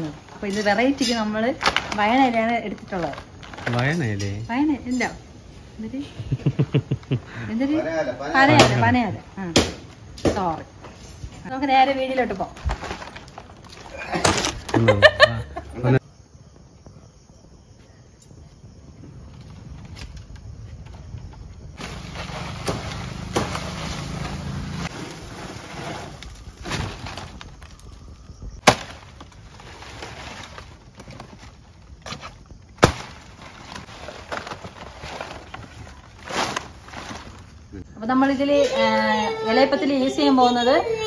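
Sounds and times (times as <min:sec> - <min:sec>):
palm leaves rustling and scraping: 0:00.0 - 0:05.1, 0:12.3 - 0:15.0, 0:21.6 - 0:37.9
leaf stalks snapping: 0:28.6 - 0:29.4.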